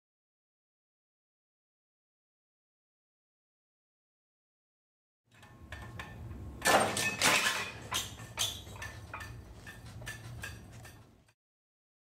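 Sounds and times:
metallic clanks and rattles: 0:05.3 - 0:11.3.

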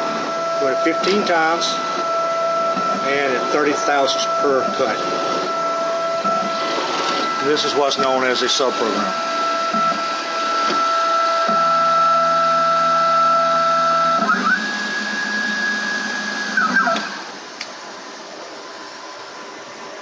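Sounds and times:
low machine drone: 0:00.0 - 0:10.1
mill cutting metal whine: 0:00.0 - 0:20.0
steady machine hum: 0:00.0 - 0:20.0.

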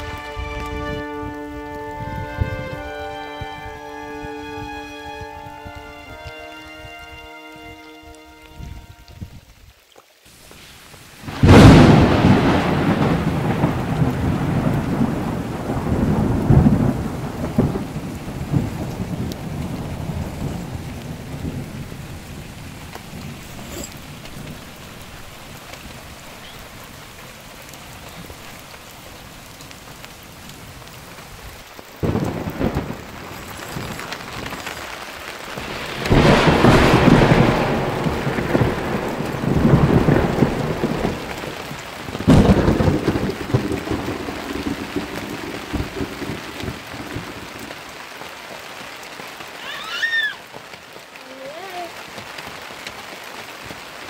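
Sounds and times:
rain falling: 0:00.0 - 0:54.0
rolling thunder: 0:11.2 - 0:27.2, 0:28.0 - 0:47.9.

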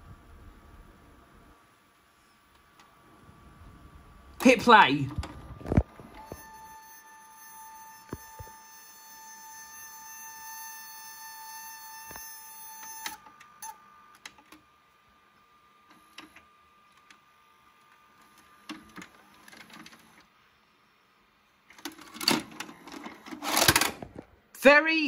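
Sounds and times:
faint mechanical clicks and whirs: 0:00.0 - 0:24.5
tape mechanism high-pitched whine: 0:04.3 - 0:20.3.

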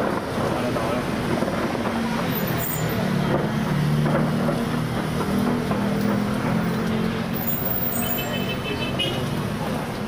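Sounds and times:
distant fireworks crackling: 0:00.0 - 0:02.4
vehicle engine humming: 0:00.0 - 0:10.0.

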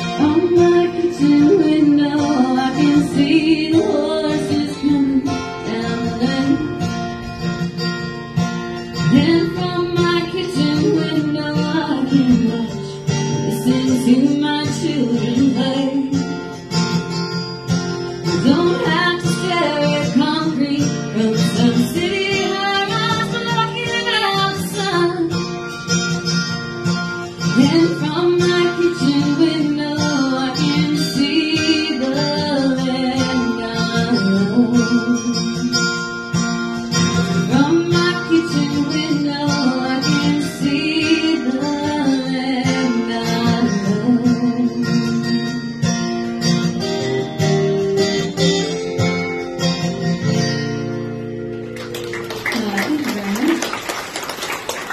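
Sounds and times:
woman singing: 0:00.0 - 0:07.2, 0:09.0 - 0:16.5, 0:18.2 - 0:25.5, 0:27.4 - 0:35.9, 0:37.3 - 0:45.6
strummed acoustic guitar: 0:00.0 - 0:54.9.

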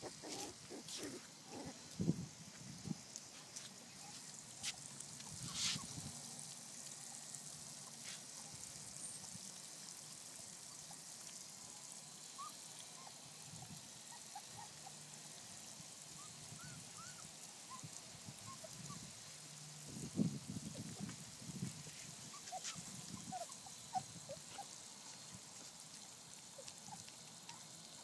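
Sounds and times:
puppies chewing and lapping: 0:00.0 - 0:02.1, 0:02.7 - 0:09.5, 0:20.2 - 0:28.0
puppy squeaks: 0:22.4 - 0:24.6.

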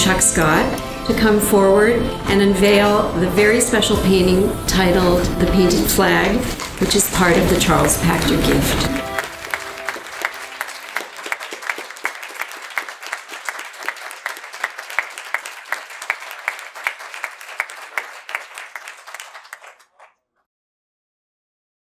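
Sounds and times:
crowd applauding: 0:06.6 - 0:20.2
sharp hand claps: 0:09.1 - 0:20.1.

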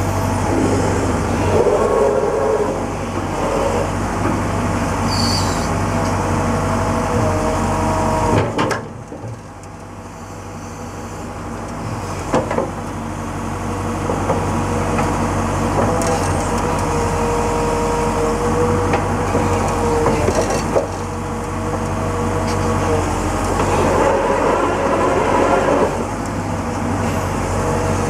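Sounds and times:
hydraulic whine: 0:00.0 - 0:04.0, 0:05.0 - 0:06.0, 0:21.7 - 0:28.0
excavator diesel engine under load: 0:00.0 - 0:28.0.

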